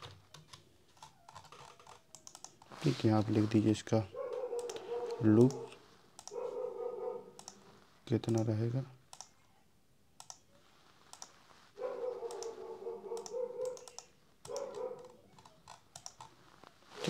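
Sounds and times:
computer mouse clicks: 0:00.0 - 0:02.7, 0:04.3 - 0:06.4, 0:07.4 - 0:07.6, 0:08.2 - 0:08.5, 0:09.1 - 0:09.4, 0:10.2 - 0:10.5, 0:11.1 - 0:11.4, 0:12.3 - 0:16.4
keyboard key presses: 0:00.0 - 0:02.7, 0:13.2 - 0:16.3.

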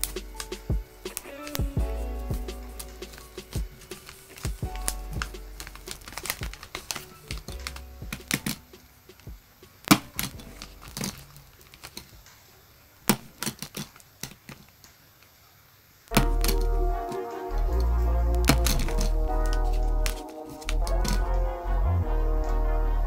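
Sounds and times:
faint background music: 0:00.0 - 0:13.6, 0:16.0 - 0:23.0.

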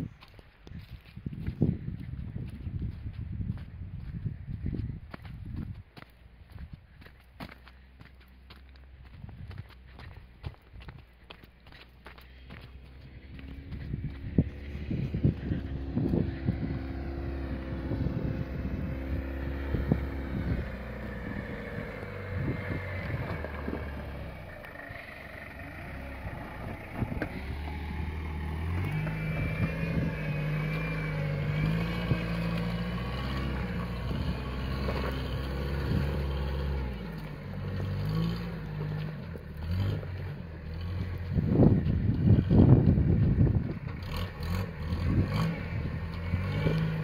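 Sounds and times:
pickup truck engine running: 0:00.2 - 0:47.0.

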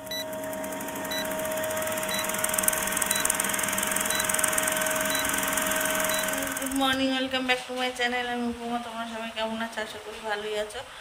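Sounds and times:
film projector clatter: 0:00.0 - 0:07.0
short high beeps: 0:03.1 - 0:03.4, 0:04.1 - 0:04.4, 0:05.1 - 0:05.4, 0:06.0 - 0:06.5.

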